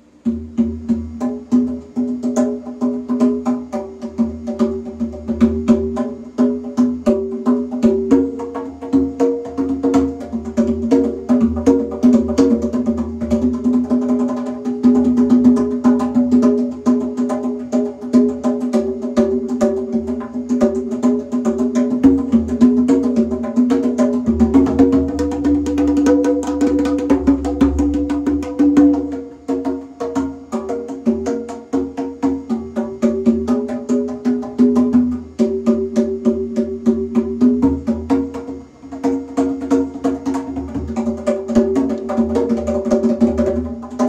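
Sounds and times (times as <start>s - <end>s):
congas played by hand: 0.0s - 44.0s.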